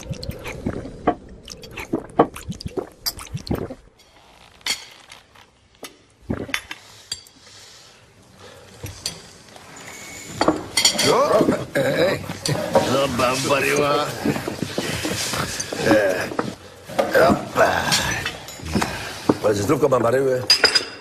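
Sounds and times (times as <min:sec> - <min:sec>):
liquid being poured: 0:00.0 - 0:04.0, 0:06.2 - 0:06.8
glassware clinking: 0:10.3 - 0:11.5, 0:20.4 - 0:21.0.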